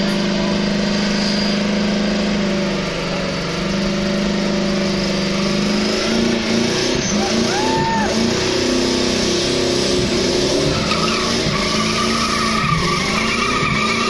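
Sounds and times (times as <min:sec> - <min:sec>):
car engine revving: 0:00.0 - 0:14.0
tyres spinning: 0:10.0 - 0:14.0.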